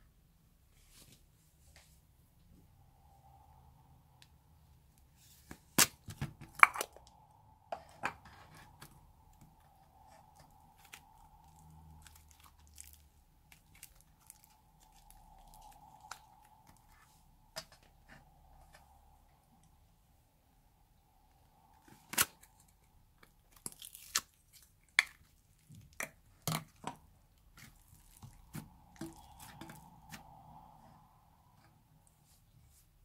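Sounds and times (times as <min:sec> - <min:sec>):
slime crackling and tearing: 0:10.4 - 0:16.8, 0:23.4 - 0:26.6.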